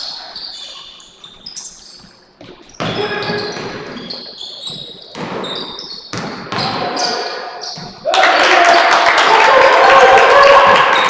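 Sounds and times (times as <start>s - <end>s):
sneakers squeaking: 0.0s - 8.1s
basketball bouncing: 2.4s - 8.0s.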